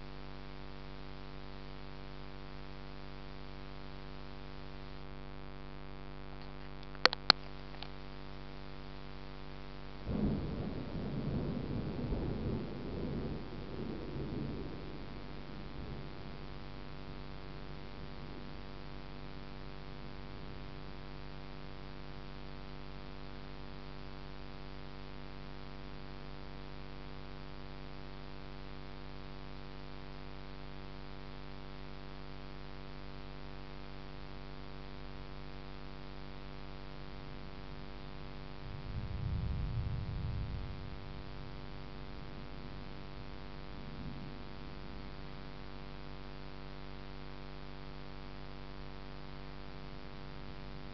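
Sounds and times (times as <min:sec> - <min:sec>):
steady hum with overtones: 0:00.0 - 0:50.9
distant thunder rumble: 0:10.1 - 0:18.7, 0:38.6 - 0:45.5.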